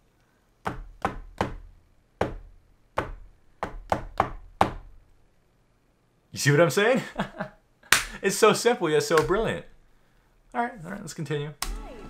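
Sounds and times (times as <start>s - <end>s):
sharp hard knocks: 9.2s - 9.5s.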